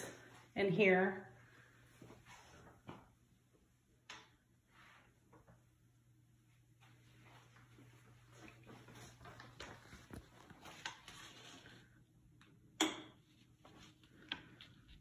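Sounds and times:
low steady hum: 0.0 - 15.0
soft footsteps on tile and carpet: 1.4 - 3.2, 6.4 - 12.0, 13.4 - 15.0.

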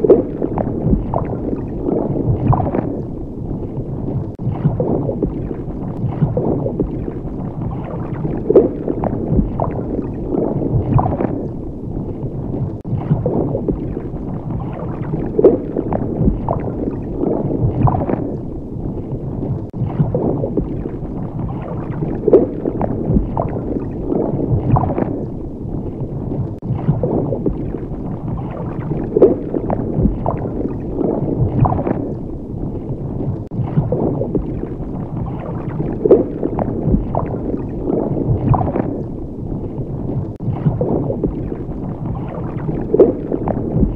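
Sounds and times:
underwater gurgling and sloshing: 0.0 - 43.9.

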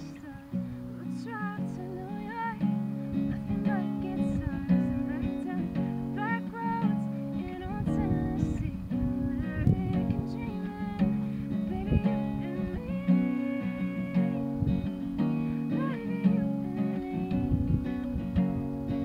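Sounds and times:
acoustic guitar strumming chords: 0.0 - 19.0.

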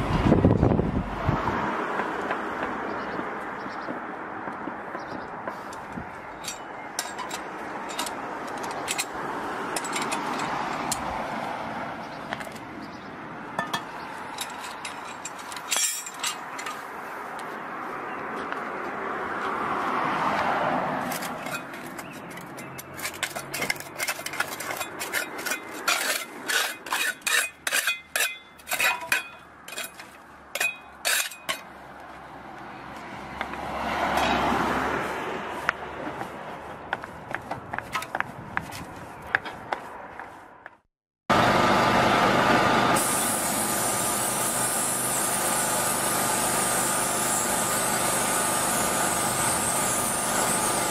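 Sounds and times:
passing traffic: 0.0 - 50.9
hand tools clinking on metal grate: 6.4 - 11.0, 13.6 - 16.8, 21.0 - 31.7.

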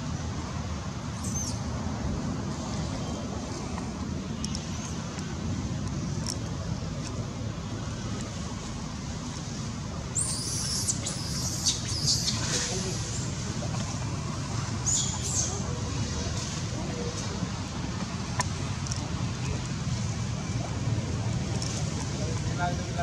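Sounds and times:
distant road traffic: 0.0 - 23.0
monkeys squealing: 10.2 - 13.2.

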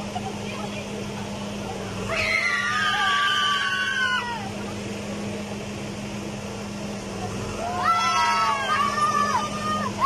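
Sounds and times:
riders screaming: 2.0 - 4.6, 7.6 - 10.0.

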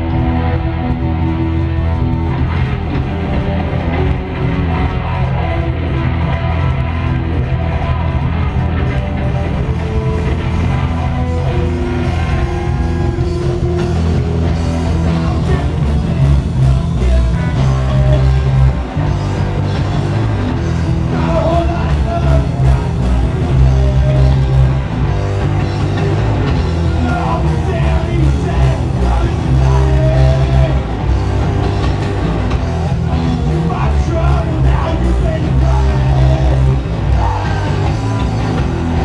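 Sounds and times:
bass guitar: 0.0 - 39.0
distorted electric guitars: 0.0 - 39.0
drums: 0.0 - 39.0
person singing and shouting: 9.6 - 19.0, 20.9 - 24.9, 25.9 - 31.0, 32.9 - 39.0.

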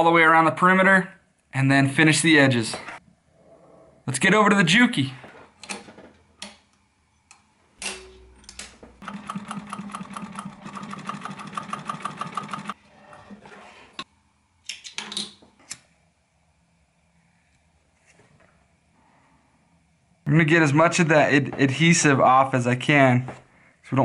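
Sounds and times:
sewing machine stitching leather: 9.0 - 12.8.

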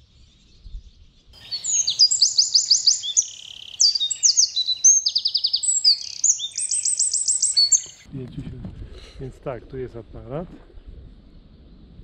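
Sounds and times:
songbird singing trills: 0.2 - 8.1.

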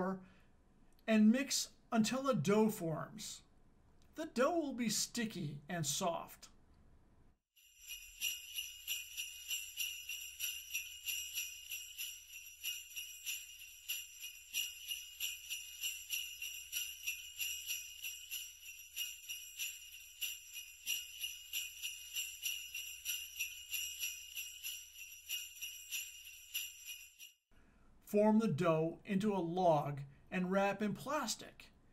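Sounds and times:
sleigh bells jingling: 7.6 - 27.4.

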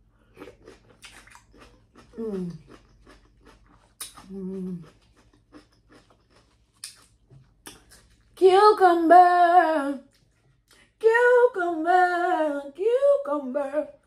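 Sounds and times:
woman singing: 8.4 - 10.1, 11.0 - 14.0.

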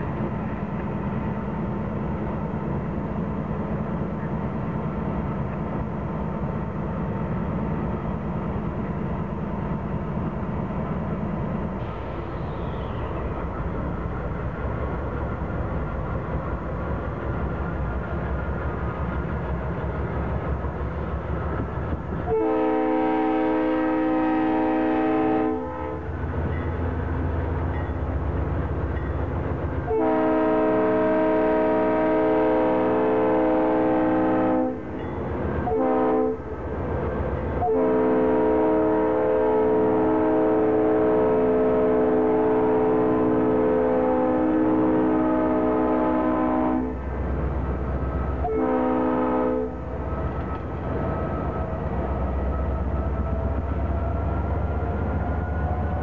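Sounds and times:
diesel locomotive engines rumbling: 0.0 - 56.0
train air horn blasts: 22.2 - 26.1, 29.8 - 34.9, 35.6 - 36.6, 37.6 - 47.0, 48.4 - 50.0.

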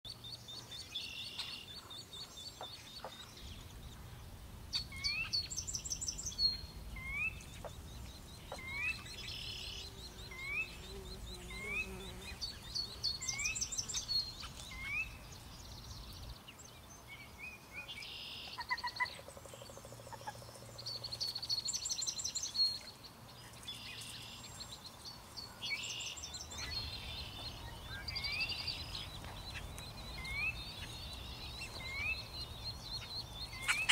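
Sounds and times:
buzzy bird trills and chirps: 18.1 - 33.9.

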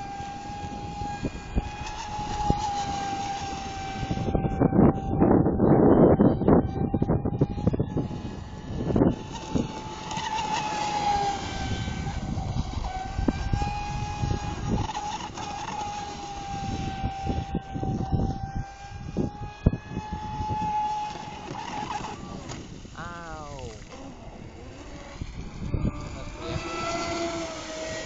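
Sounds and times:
electric motor whining: 0.0 - 28.0.

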